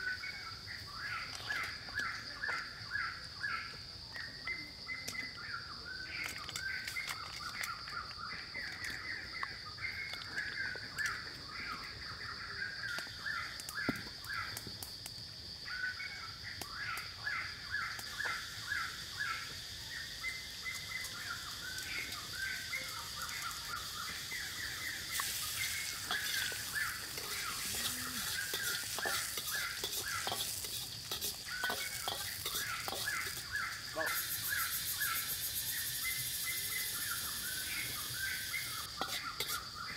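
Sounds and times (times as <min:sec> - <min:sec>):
birds chirping and chattering: 0:00.0 - 0:14.6, 0:15.6 - 0:39.9
insects droning: 0:00.0 - 0:39.9
bright steady hiss: 0:14.7 - 0:39.9.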